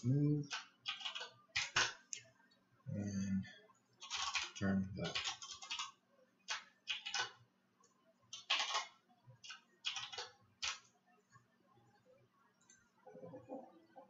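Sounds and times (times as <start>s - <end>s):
typing on keyboard: 0.4s - 2.0s, 4.0s - 7.4s, 8.3s - 10.9s.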